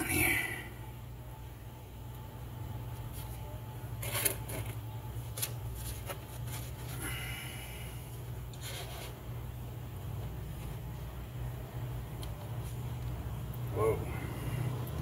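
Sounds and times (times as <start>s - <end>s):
steady low hum: 0.0s - 15.0s
paper rustling: 4.0s - 7.0s.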